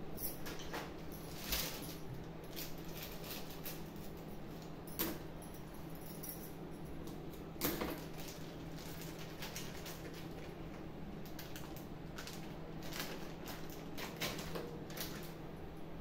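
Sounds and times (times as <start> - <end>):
plastic packet crinkling: 8.0 - 10.6, 11.2 - 15.2.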